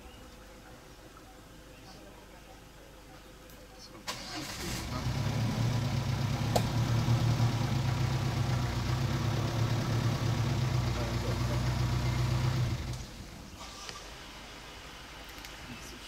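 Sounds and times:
vehicle engine idling: 4.1s - 15.2s.

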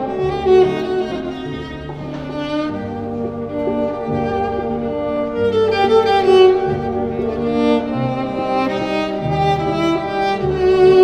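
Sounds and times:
cello bowed slow melody: 0.0s - 11.0s.

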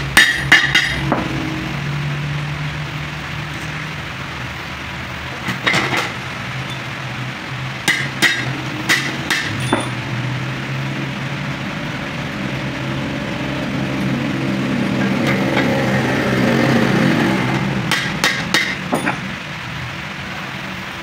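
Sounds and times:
sharp metallic taps: 7.8s - 10.0s, 17.9s - 19.3s.

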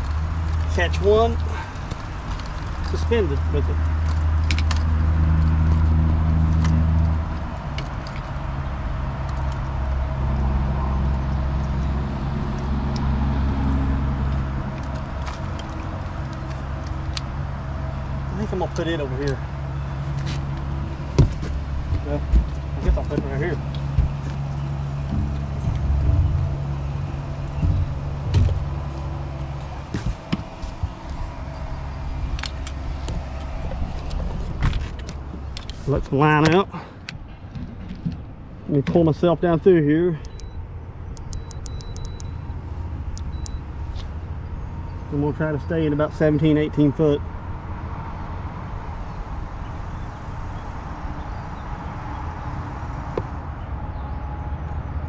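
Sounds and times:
boat motor running: 7.2s - 35.5s.

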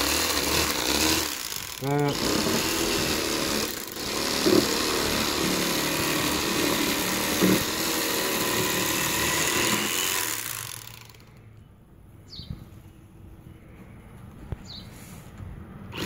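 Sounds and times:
electric knife buzzing: 0.0s - 11.2s.

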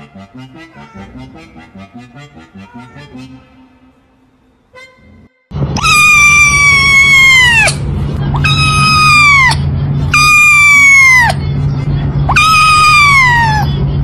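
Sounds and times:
kitten meowing loudly: 2.6s - 3.2s, 5.8s - 7.8s, 8.4s - 11.4s, 12.3s - 13.7s.

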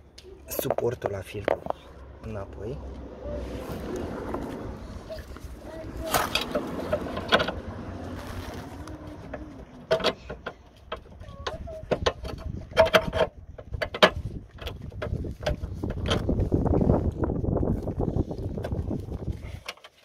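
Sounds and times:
metal and plastic parts clicking: 9.3s - 16.3s.

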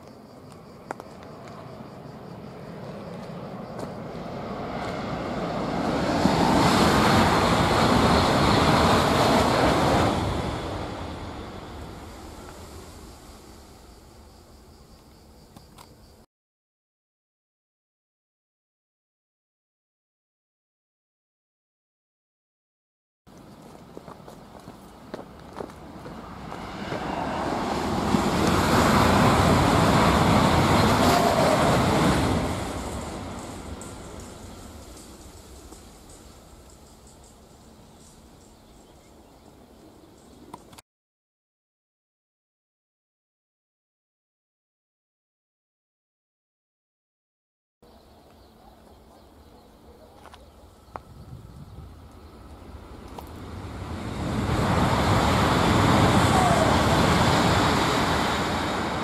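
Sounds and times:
high-speed train passing: 0.1s - 16.2s, 23.3s - 40.8s, 48.9s - 59.0s.

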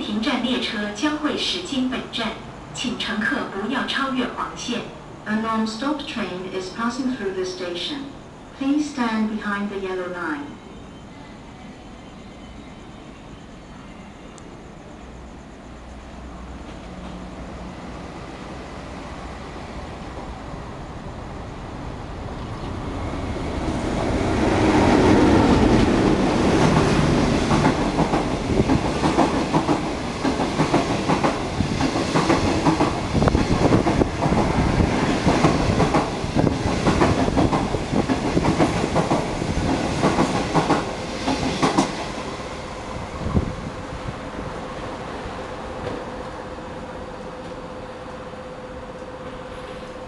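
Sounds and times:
locomotive rumble passing: 14.7s - 50.0s
train wheels clattering on rails: 24.0s - 42.3s.

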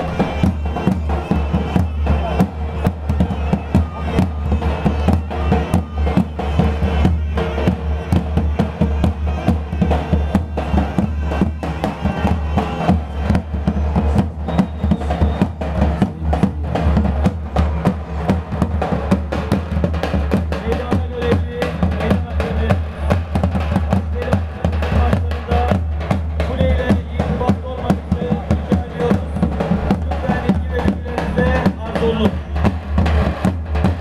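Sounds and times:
fast steady drumbeat: 0.0s - 34.0s.

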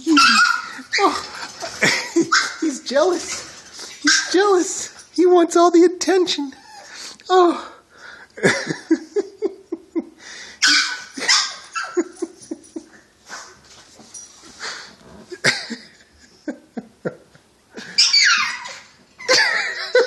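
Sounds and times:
dog whining and yipping: 0.0s - 1.5s, 2.3s - 2.6s, 10.6s - 12.1s, 17.8s - 19.5s.

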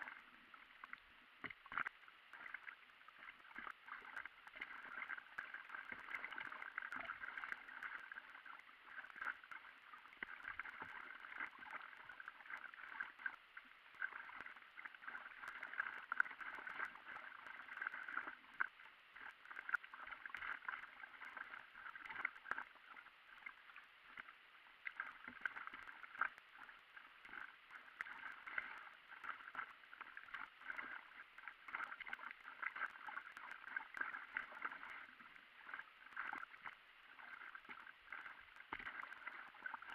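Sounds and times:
water gurgling against paddleboard: 0.0s - 39.9s
paddle stroke splashes: 24.9s - 39.9s.

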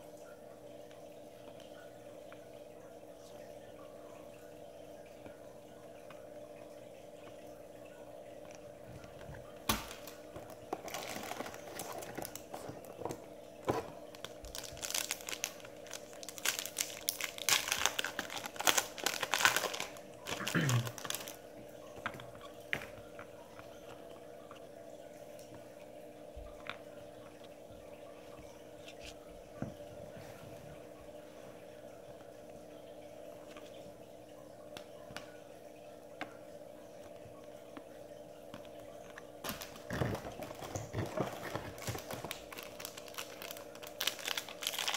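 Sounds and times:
faint steady hum: 0.0s - 44.9s
foil wrapper crinkling and tearing: 9.7s - 13.0s, 14.0s - 21.4s, 39.4s - 44.9s.

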